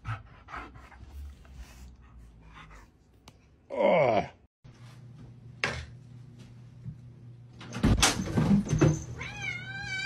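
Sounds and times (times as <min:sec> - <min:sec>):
cat meowing: 0:09.2 - 0:10.0.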